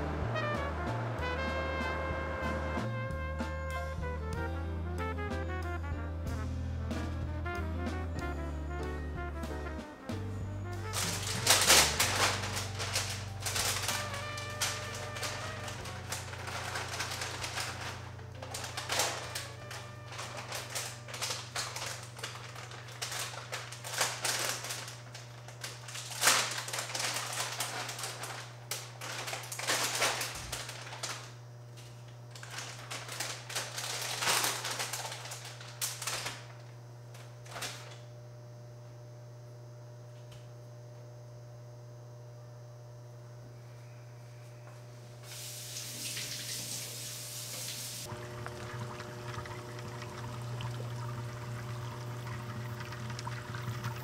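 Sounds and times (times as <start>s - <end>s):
steady low hum: 6.4s - 45.4s
running tap water: 45.2s - 54.0s.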